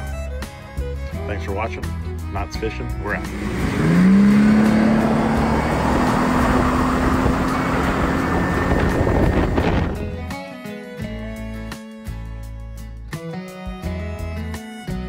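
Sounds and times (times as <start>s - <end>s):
outboard motor running hard: 3.1s - 10.2s
water rushing past boat: 3.3s - 10.1s
wind rushing: 3.4s - 10.3s.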